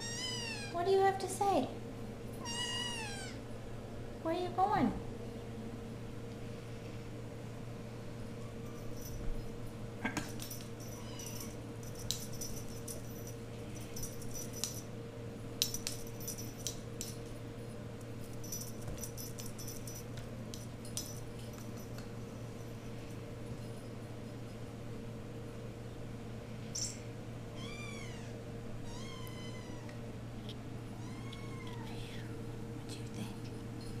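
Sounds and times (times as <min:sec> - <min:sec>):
steady low hum: 0:00.0 - 0:34.0
metallic jingles: 0:10.3 - 0:14.9, 0:18.3 - 0:22.0.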